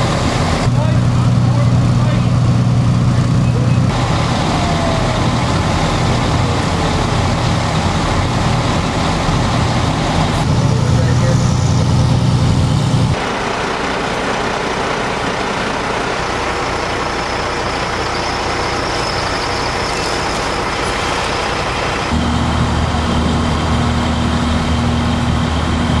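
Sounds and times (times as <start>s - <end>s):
diesel engines droning: 0.0s - 26.0s
low idling hum: 0.0s - 26.0s.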